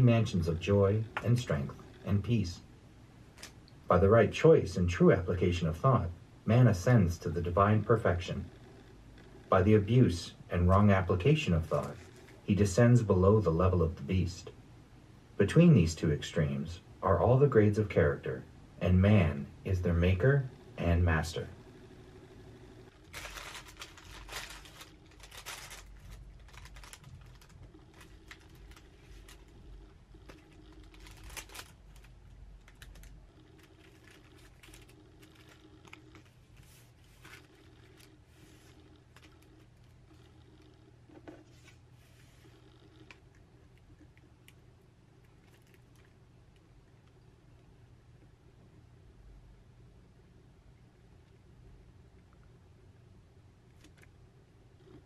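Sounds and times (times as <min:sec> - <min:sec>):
low steady hum: 0:00.0 - 0:55.0
paper sheets rustling: 0:23.0 - 0:29.5, 0:33.8 - 0:39.4.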